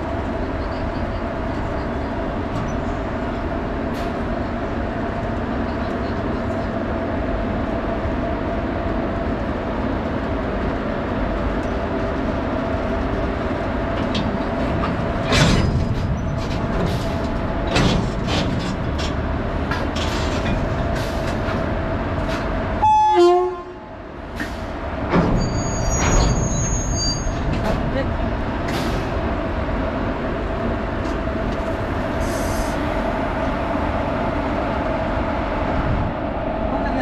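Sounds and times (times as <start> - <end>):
electric locomotive hum: 0.0 - 37.0
train horn toot: 22.8 - 23.8.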